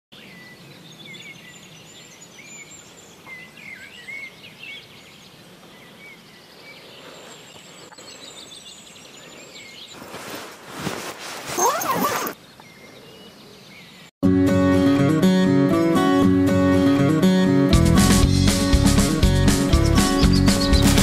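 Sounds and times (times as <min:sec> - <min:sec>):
songbirds singing: 0:00.1 - 0:10.9, 0:11.8 - 0:14.2, 0:19.5 - 0:21.0
steady outdoor hiss: 0:00.2 - 0:11.4.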